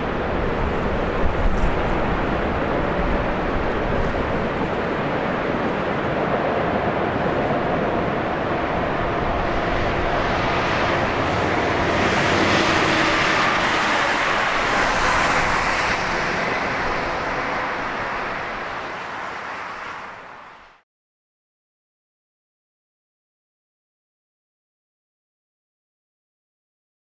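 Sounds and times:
river rapids rushing: 0.0 - 20.6
freight train rumble: 0.0 - 20.8.

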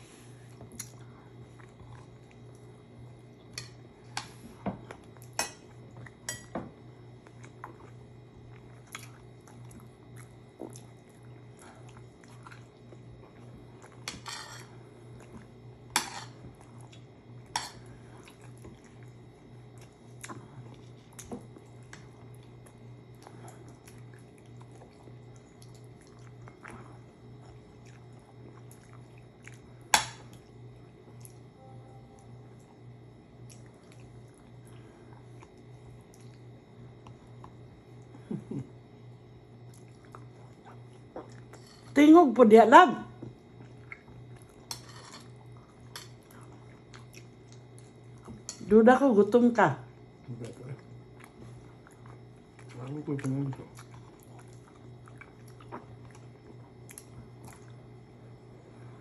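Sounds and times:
steady low hum: 0.0 - 59.0
chewing and mouth noises: 0.7 - 3.5, 7.2 - 14.0, 18.2 - 30.5, 33.4 - 38.2, 39.6 - 41.9, 43.4 - 44.7, 45.4 - 48.5, 50.2 - 58.0
utensils clinking on plates: 14.1 - 14.7, 16.0 - 16.4, 44.7 - 45.3.

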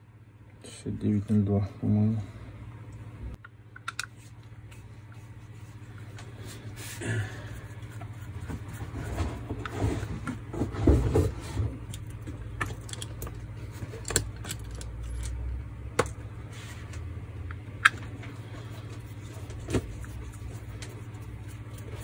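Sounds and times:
steady low hum: 0.0 - 22.0
rustling and scraping: 4.1 - 15.4, 16.4 - 17.2, 17.9 - 22.0.

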